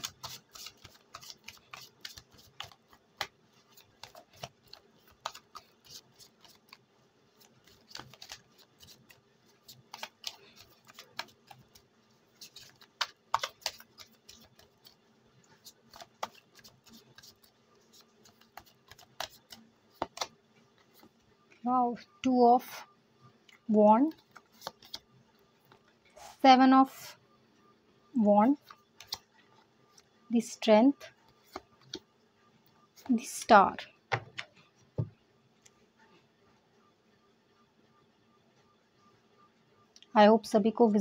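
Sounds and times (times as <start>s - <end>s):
cards being shuffled: 0.0s - 21.1s, 24.1s - 25.1s, 28.7s - 29.3s.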